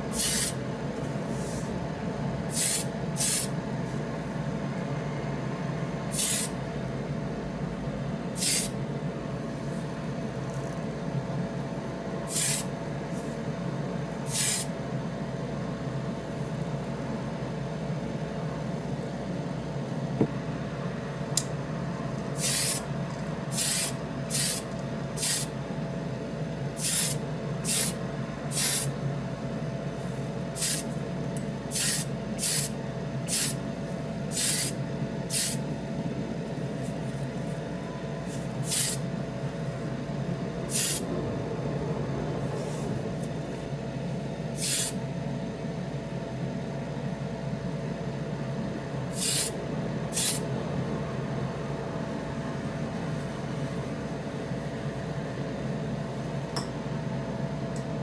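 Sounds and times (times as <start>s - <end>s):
steady low hum: 0.0s - 58.0s
paint spray hisses: 0.1s - 0.6s, 2.5s - 3.5s, 6.1s - 6.5s, 8.4s - 8.7s, 12.3s - 12.7s, 14.3s - 14.7s, 22.4s - 22.8s, 23.5s - 24.6s, 25.2s - 25.5s, 26.8s - 28.9s, 30.6s - 30.9s, 31.7s - 32.7s, 33.3s - 33.6s, 34.3s - 35.6s, 38.6s - 39.0s, 40.7s - 41.0s, 44.6s - 45.0s, 49.1s - 49.5s, 50.1s - 50.4s.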